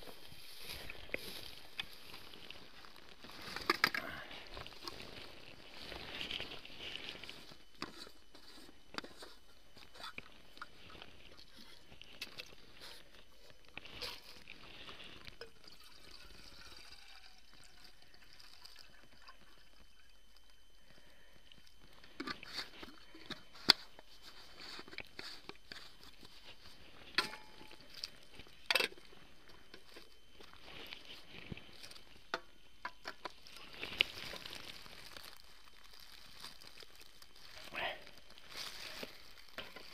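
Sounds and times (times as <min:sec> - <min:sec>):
dry leaves rustling: 0:00.0 - 0:07.6, 0:33.4 - 0:39.9.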